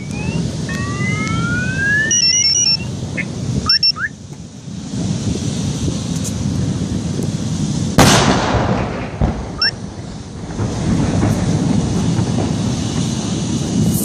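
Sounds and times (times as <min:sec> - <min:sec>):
car alarms sounding: 0:00.0 - 0:04.2
steady low rumble: 0:00.0 - 0:14.0.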